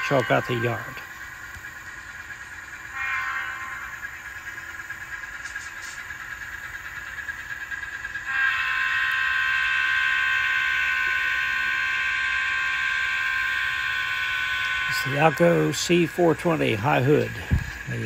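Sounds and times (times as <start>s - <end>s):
diesel horn chord: 0.0s - 1.2s, 8.3s - 17.3s
model locomotive sound through small speaker: 0.0s - 18.0s.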